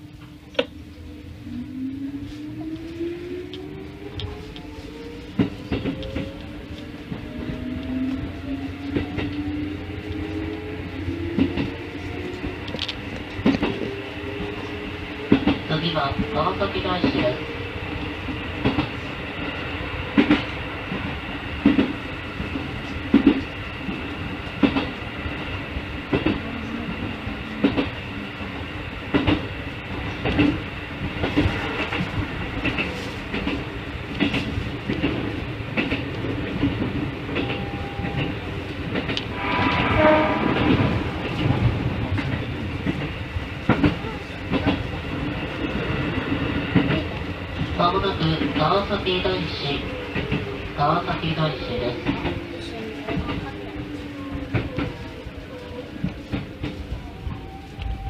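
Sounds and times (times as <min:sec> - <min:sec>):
train running hum: 0:00.0 - 0:58.0.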